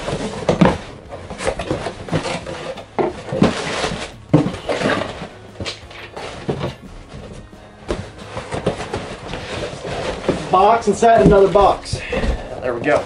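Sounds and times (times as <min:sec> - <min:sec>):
cardboard box flaps scraping: 0:00.0 - 0:12.5.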